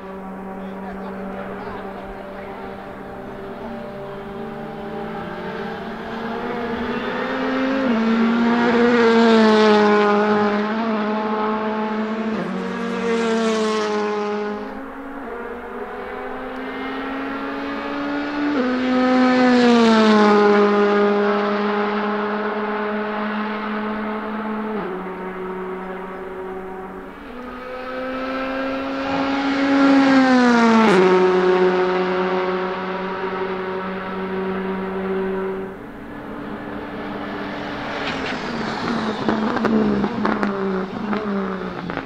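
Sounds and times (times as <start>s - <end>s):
race car engines at high revs: 0.0s - 42.0s
gear changes: 23.5s - 42.0s.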